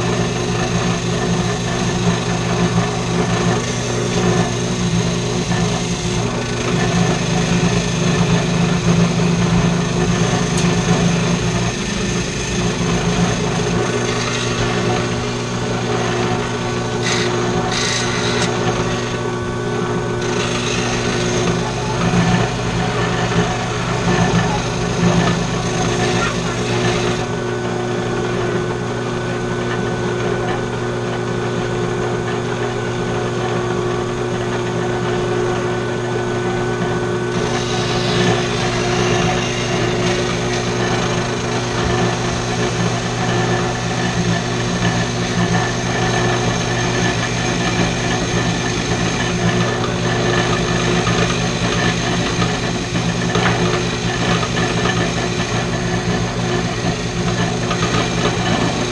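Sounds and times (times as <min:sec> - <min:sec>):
machine hum: 0:00.0 - 0:58.9.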